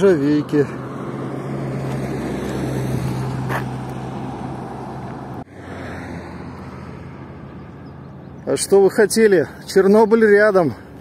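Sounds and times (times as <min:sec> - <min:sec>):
tyre and road noise: 0:00.0 - 0:11.0
vehicle engine hum: 0:00.0 - 0:11.0.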